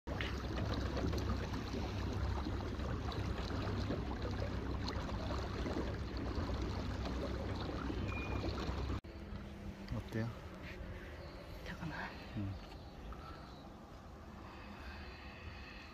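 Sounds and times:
water lapping against boat hull: 0:00.1 - 0:09.0.

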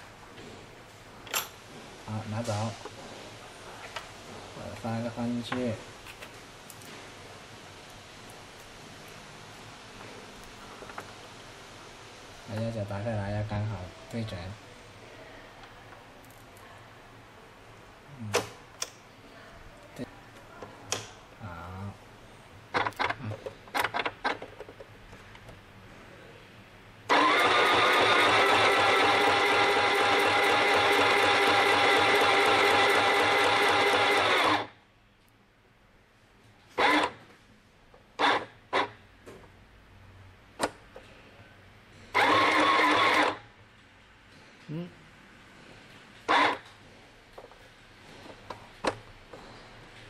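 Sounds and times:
sewing machine running: 0:27.1 - 0:34.7, 0:42.1 - 0:43.4, 0:46.3 - 0:46.6.

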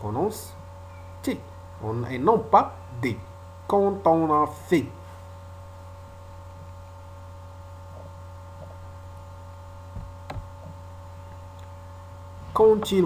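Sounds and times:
low electrical hum: 0:00.0 - 0:13.0
soft thump: 0:09.9 - 0:10.8.

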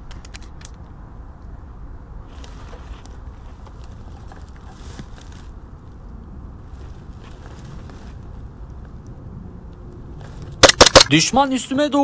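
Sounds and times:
low wind rumble on microphone: 0:00.0 - 0:10.6
rustling of camouflage suit: 0:02.2 - 0:05.6, 0:06.6 - 0:08.5.

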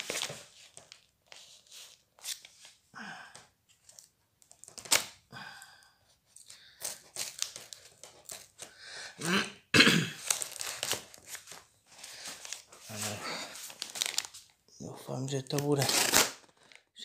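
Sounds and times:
paper envelope crinkling: 0:00.0 - 0:02.8, 0:06.3 - 0:08.7, 0:10.2 - 0:14.6, 0:15.3 - 0:17.0
tape tearing: 0:02.2 - 0:02.7, 0:04.5 - 0:05.2, 0:10.2 - 0:11.6, 0:15.5 - 0:16.8
knife cutting packing tape: 0:15.8 - 0:16.6.

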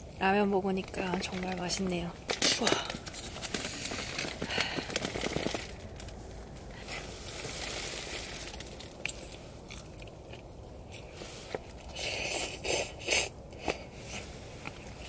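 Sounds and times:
plastic wrapper crinkling and tearing: 0:01.0 - 0:10.1.

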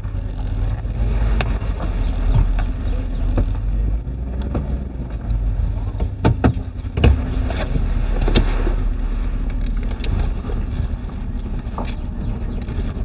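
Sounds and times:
vehicle engine and road rumble: 0:00.0 - 0:13.0
sharp knocks and rattles: 0:04.3 - 0:13.0.

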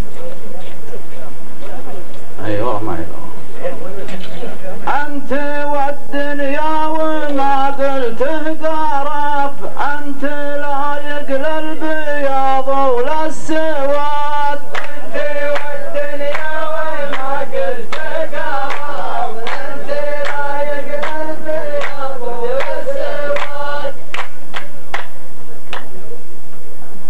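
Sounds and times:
men chanting in unison: 0:04.8 - 0:24.0
hands clapping: 0:12.9 - 0:13.2, 0:14.7 - 0:26.0.

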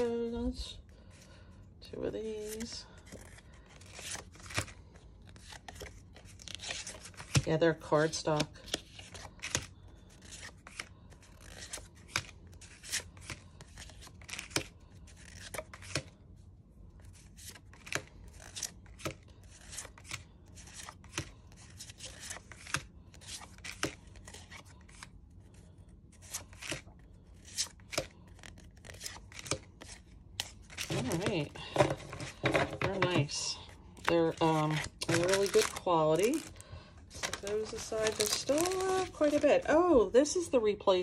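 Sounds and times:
cards sliding: 0:17.0 - 0:25.1, 0:26.2 - 0:33.4.

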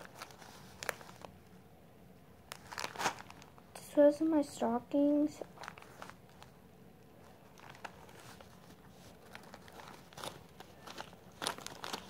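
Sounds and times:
candy bag rustling and clicking: 0:00.0 - 0:01.4, 0:02.5 - 0:03.6, 0:05.4 - 0:06.6, 0:07.2 - 0:12.0.

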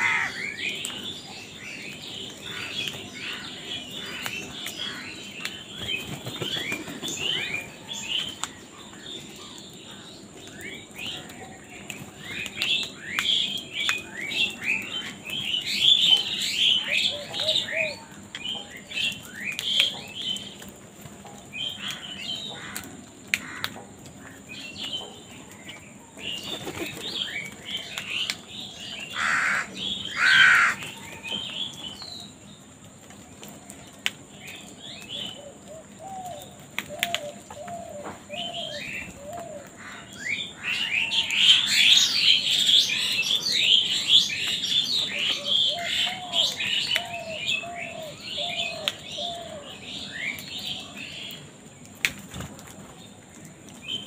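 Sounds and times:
wings flapping: 0:26.3 - 0:27.2.

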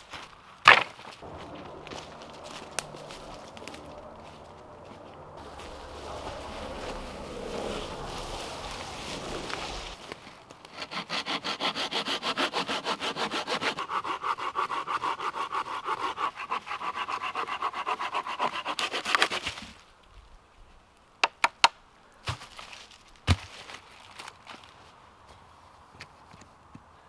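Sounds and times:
hand saw cutting wood: 0:05.6 - 0:19.6.

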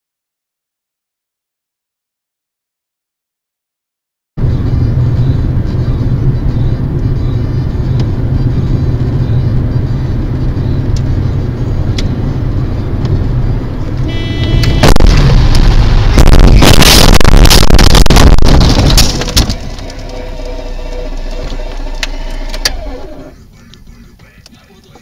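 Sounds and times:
engine and tyres rumbling on wet road: 0:04.4 - 0:23.4
car crash bang: 0:14.6 - 0:20.8.

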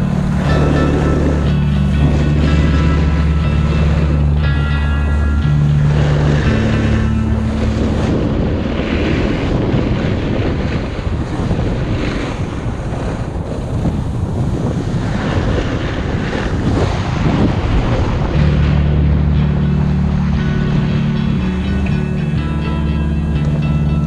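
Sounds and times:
snowboard sliding over snow: 0:00.0 - 0:18.7
wind rushing over microphone: 0:00.0 - 0:24.0.

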